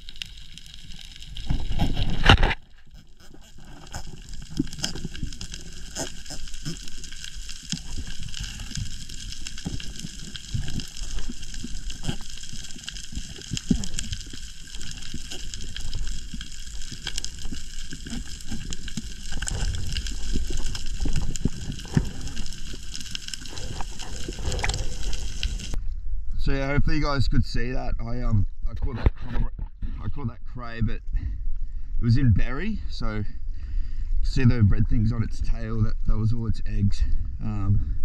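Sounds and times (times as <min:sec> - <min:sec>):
underwater crackling and clicking: 0:00.0 - 0:25.8.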